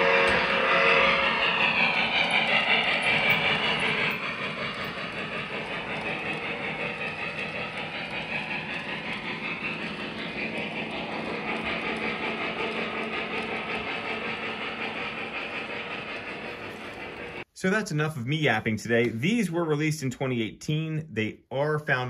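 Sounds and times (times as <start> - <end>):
model train wheels clicking: 0.0 - 17.4.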